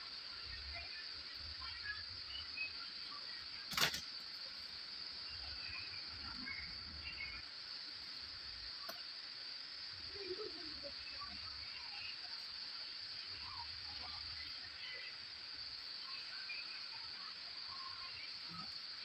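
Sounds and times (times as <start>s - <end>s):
crickets chirping: 0.0s - 19.0s
sharp click: 3.7s - 4.1s.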